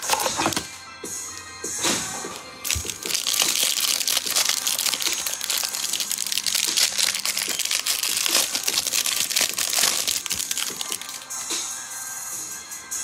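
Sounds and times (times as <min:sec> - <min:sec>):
plastic wrapper crinkling and tearing: 0:00.0 - 0:00.7, 0:02.6 - 0:11.4.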